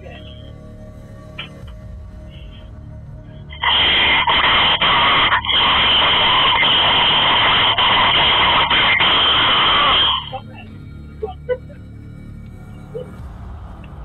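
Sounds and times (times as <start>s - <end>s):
loud rushing hiss: 3.5s - 10.4s.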